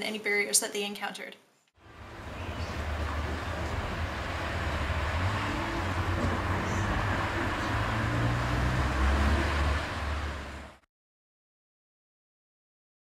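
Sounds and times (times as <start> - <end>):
road noise rumble: 1.8 - 10.8
cars driving past: 1.8 - 10.9.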